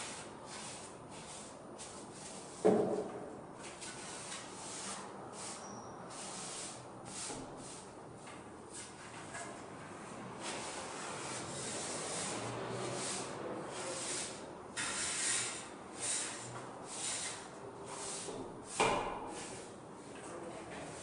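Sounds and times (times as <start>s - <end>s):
broom sweeping concrete floor: 0.0s - 9.3s, 10.0s - 21.0s.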